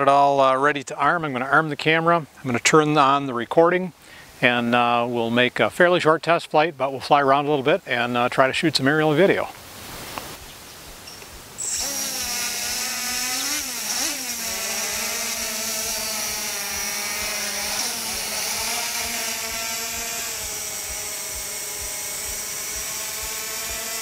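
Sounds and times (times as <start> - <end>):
quadcopter motors whining: 10.8 - 24.0.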